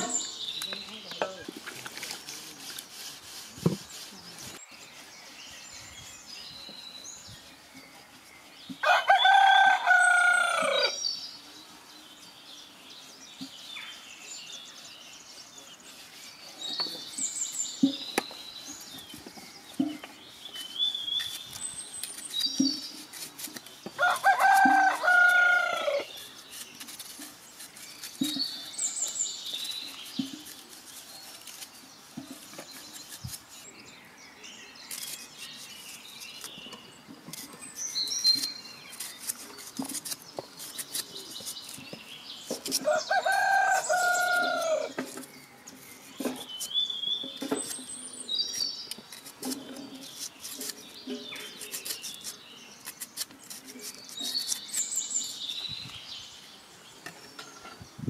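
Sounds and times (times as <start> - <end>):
small birds chirping: 0.0 - 58.0
rooster crowing: 8.8 - 11.0, 24.0 - 26.0.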